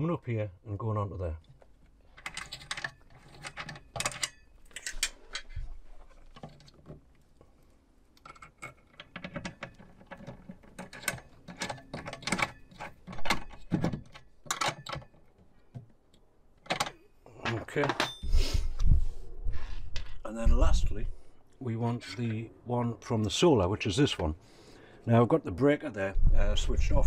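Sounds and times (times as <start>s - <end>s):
small clicks and scrapes of metal: 1.4s - 17.0s.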